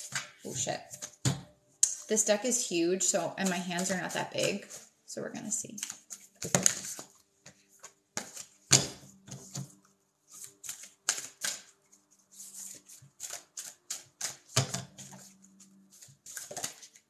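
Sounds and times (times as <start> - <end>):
cards being shuffled by hand: 5.7 - 8.7, 9.3 - 17.0.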